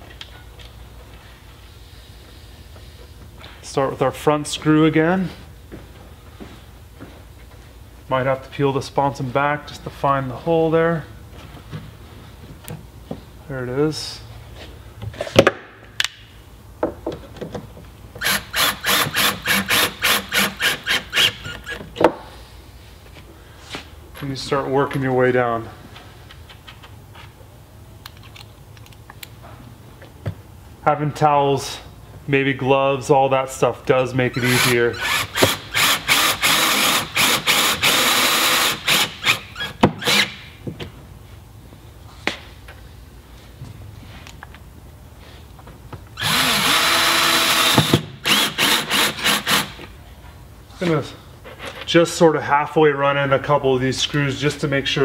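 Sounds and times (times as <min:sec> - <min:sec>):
cordless drill pulsing: 0:18.2 - 0:21.7, 0:34.5 - 0:40.3, 0:46.2 - 0:49.7.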